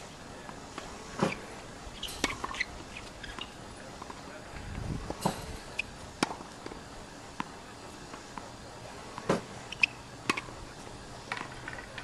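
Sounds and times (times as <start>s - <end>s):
tennis ball hits and bounces: 2.0s - 4.2s, 5.1s - 6.8s, 9.1s - 10.5s.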